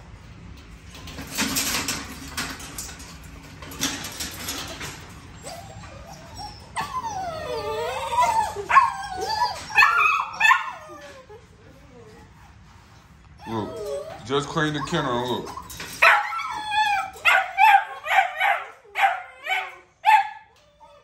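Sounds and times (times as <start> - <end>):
puppies scuffling: 1.0 - 19.0
puppies whining and whimpering: 4.5 - 21.0.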